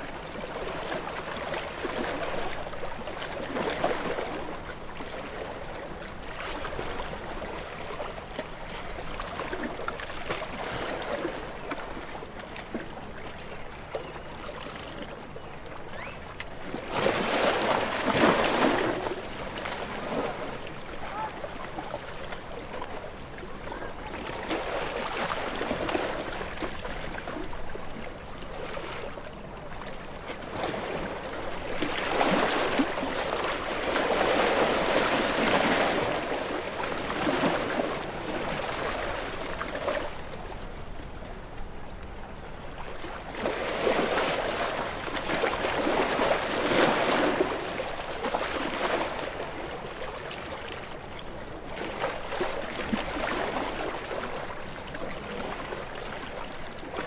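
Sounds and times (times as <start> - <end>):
sea waves breaking: 16.0 - 41.1, 42.6 - 57.0.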